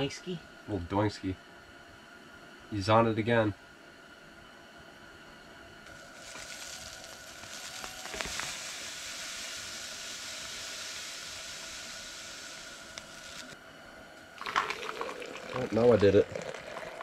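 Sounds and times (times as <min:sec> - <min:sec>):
ground coffee pouring into pot: 0:05.9 - 0:13.5, 0:14.4 - 0:17.0.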